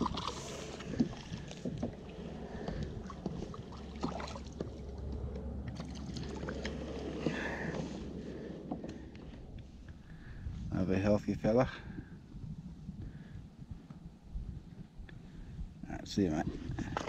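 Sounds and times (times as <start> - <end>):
water lapping against kayak hull: 0.0 - 10.5, 16.5 - 17.0.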